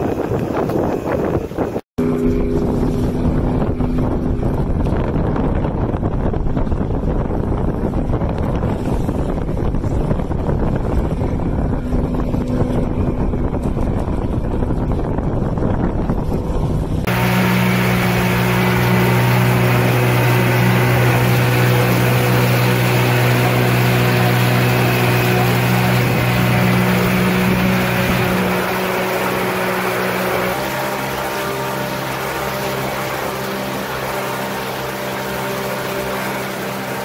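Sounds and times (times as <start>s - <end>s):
outboard motor running at speed: 0.0s - 37.0s
water rushing in wake: 0.0s - 37.0s
wind rumbling on microphone: 0.0s - 37.0s
faint motor hum: 17.1s - 37.0s.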